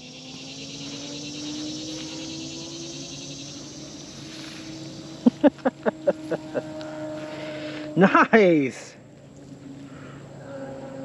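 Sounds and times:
short pitched chirping calls: 0.0 - 5.4
high insect buzz: 0.0 - 8.7, 9.5 - 11.0
low motor hum: 0.0 - 11.0.

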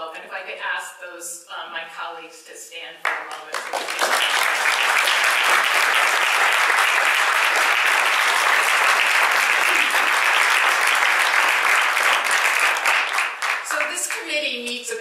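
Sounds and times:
audience applauding: 3.1 - 14.2.

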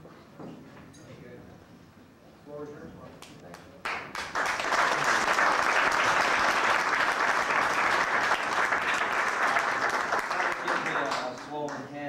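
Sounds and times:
audience applauding: 3.8 - 11.9.

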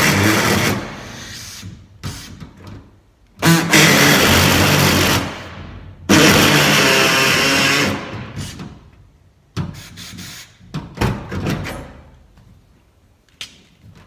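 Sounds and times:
air tool cutting sheet steel: 3.4 - 5.4, 6.1 - 8.5.

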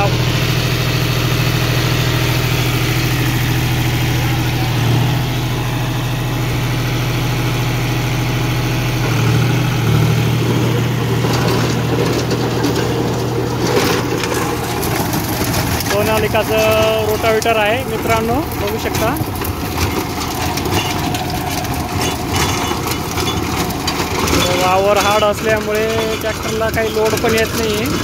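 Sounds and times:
tractor diesel engine running: 0.0 - 28.0
scratchy rattling: 9.6 - 28.0.

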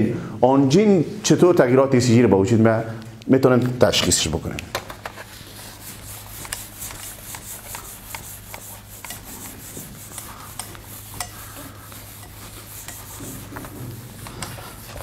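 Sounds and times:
eraser rubbing on whiteboard: 5.2 - 15.0.

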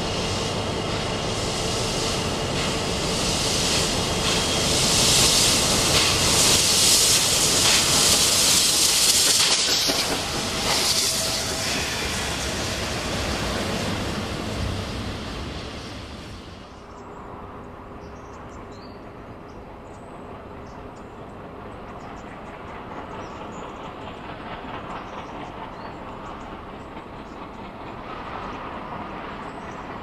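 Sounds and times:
steam hissing: 0.0 - 16.8, 22.7 - 30.0
steam locomotive rumbling: 0.0 - 30.0.

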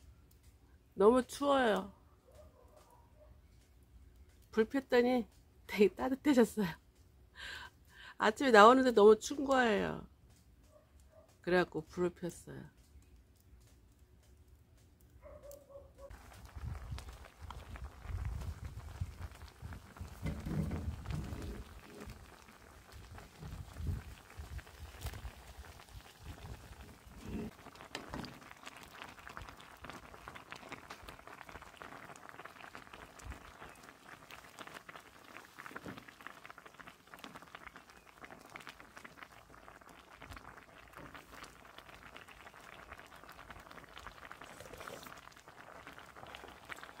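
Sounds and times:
soup bubbling: 16.1 - 47.0.

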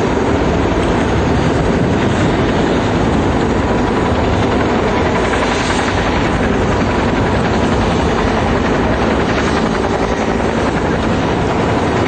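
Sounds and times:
helicopter rotor and engine: 0.0 - 12.0.

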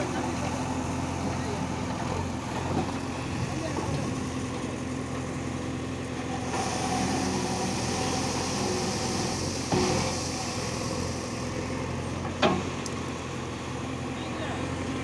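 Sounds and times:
diesel engine running: 0.0 - 15.0
hydraulic hiss: 6.4 - 11.5.

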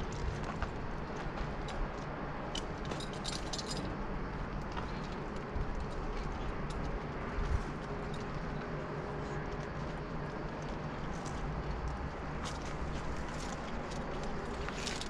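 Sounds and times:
metal carabiners clinking: 2.5 - 6.9, 12.4 - 15.0.

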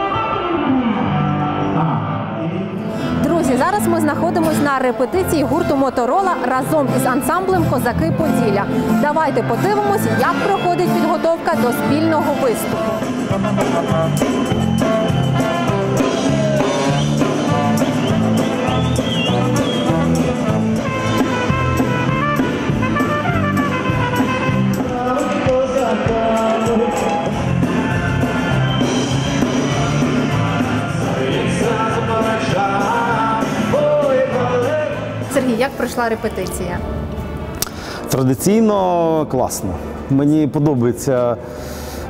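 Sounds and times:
guitar: 0.0 - 40.9
trumpet: 3.8 - 35.2
clarinet: 9.1 - 24.8
drum kit beat: 9.2 - 35.7.

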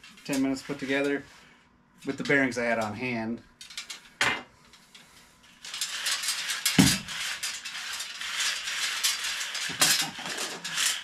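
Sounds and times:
metal tube scraping through rollers: 0.0 - 1.4, 5.4 - 11.0.

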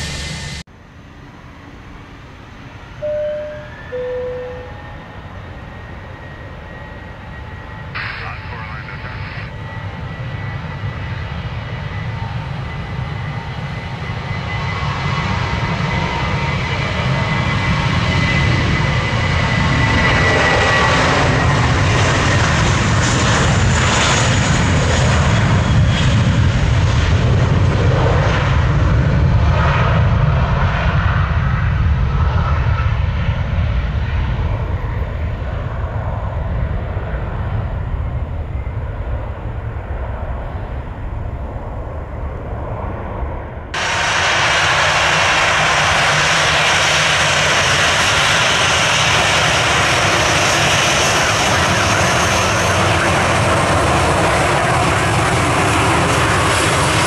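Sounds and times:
jet airliner passing: 0.0 - 57.0
jet engine burst: 6.2 - 9.5, 42.4 - 57.0.

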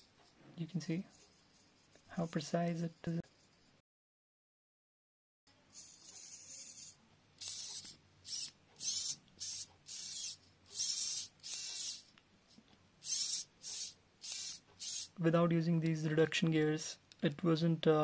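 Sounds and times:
servo motor whirring: 5.7 - 12.1, 13.0 - 15.2.

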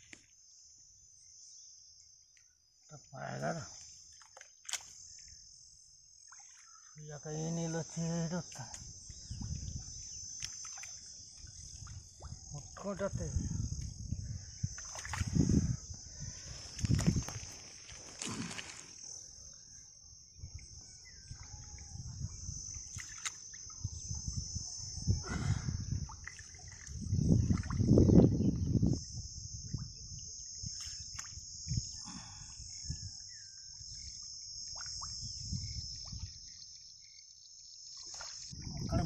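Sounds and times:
high insect drone: 0.0 - 39.0
hands sloshing through muddy water: 14.8 - 15.4, 16.6 - 19.0, 22.8 - 23.6.

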